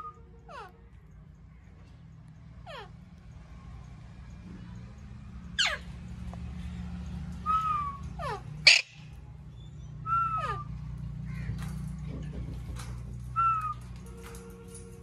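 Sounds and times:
parakeets screeching: 0:02.6 - 0:03.0, 0:05.4 - 0:06.4, 0:07.3 - 0:11.9
whistled bird notes: 0:07.4 - 0:10.8, 0:13.4 - 0:13.9.

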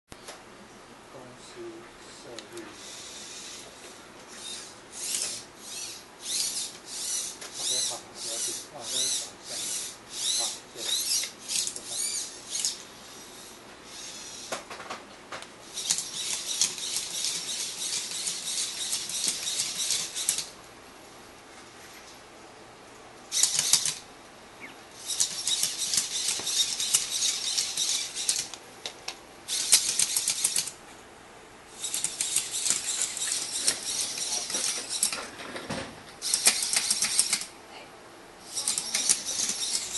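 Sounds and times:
robot servo motors whirring: 0:02.8 - 0:14.5, 0:15.7 - 0:20.5, 0:23.3 - 0:24.0, 0:25.0 - 0:28.6, 0:29.5 - 0:30.7, 0:31.7 - 0:35.2, 0:36.2 - 0:37.5, 0:38.5 - 0:39.9.

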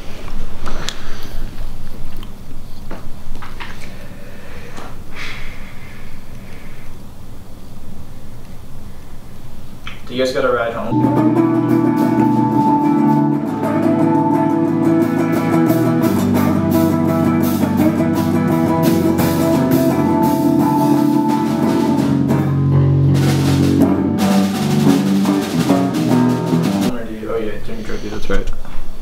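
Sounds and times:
rock band playing: 0:10.9 - 0:27.0.

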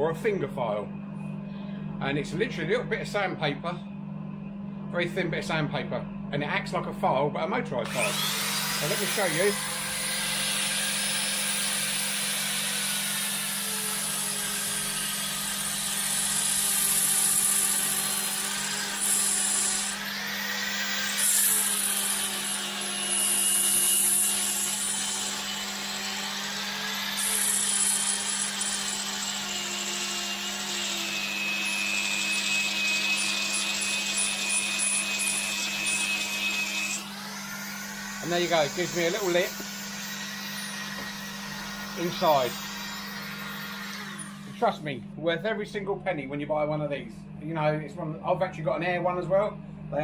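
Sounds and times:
power file motor whine: 0:07.8 - 0:44.7.

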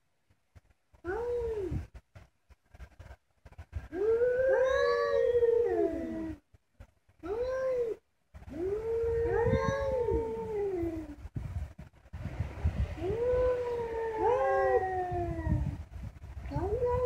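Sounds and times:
cats yowling: 0:04.3 - 0:06.2, 0:08.6 - 0:10.4.

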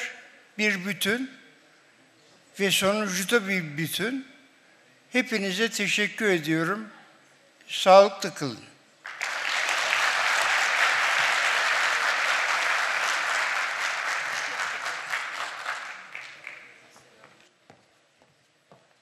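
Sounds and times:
audience applause: 0:09.1 - 0:16.8.

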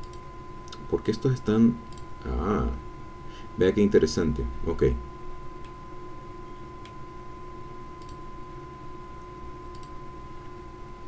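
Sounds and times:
computer mouse clicks: 0:00.0 - 0:00.8, 0:01.9 - 0:02.1, 0:08.0 - 0:08.2, 0:09.7 - 0:10.0.

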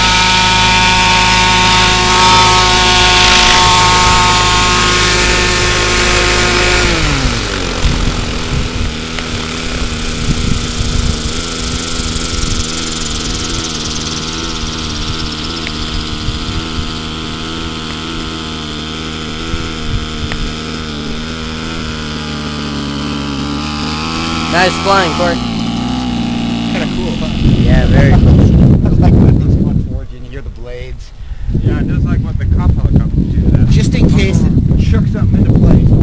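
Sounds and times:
small gas engine idling: 0:00.0 - 0:28.7
helicopter rotor turning: 0:00.0 - 0:30.6, 0:32.6 - 0:36.0.

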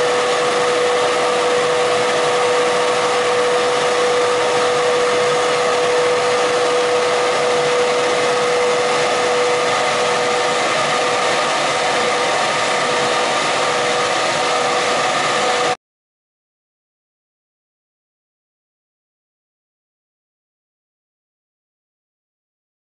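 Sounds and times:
machine running with whine: 0:00.0 - 0:15.8.

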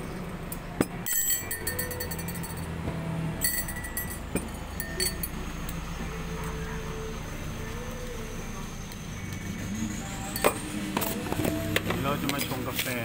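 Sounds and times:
metal spoon clinking glass: 0:00.5 - 0:02.7, 0:03.4 - 0:05.8, 0:10.3 - 0:11.2.

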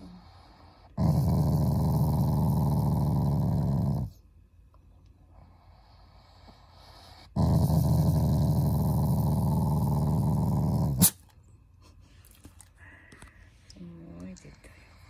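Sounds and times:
dog growling: 0:00.0 - 0:04.2, 0:06.8 - 0:11.2.

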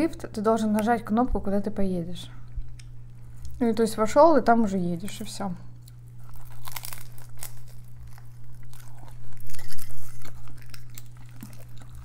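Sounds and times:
chewing: 0:05.8 - 0:12.0
seaweed sheets crunching: 0:05.9 - 0:12.0.

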